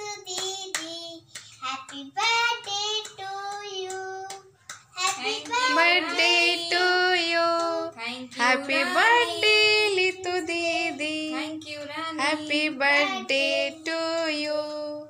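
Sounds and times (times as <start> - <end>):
child singing: 0.0 - 15.0
woman singing: 5.0 - 15.0.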